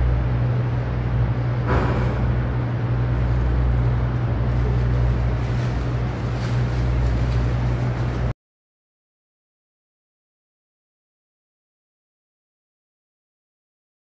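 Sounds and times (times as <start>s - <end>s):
ventilation hum and hiss: 0.0s - 8.3s.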